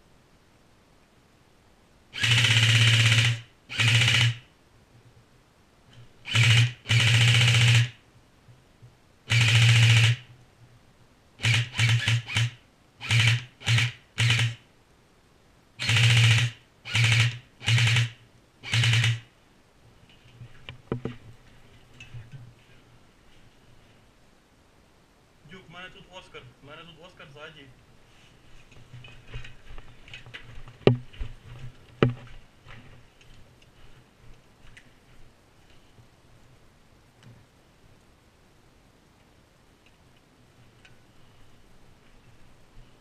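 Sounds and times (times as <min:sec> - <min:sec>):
airsoft rifle full-auto bursts: 0:02.1 - 0:04.5, 0:06.2 - 0:08.0, 0:09.3 - 0:10.3, 0:11.4 - 0:14.6, 0:15.8 - 0:19.3.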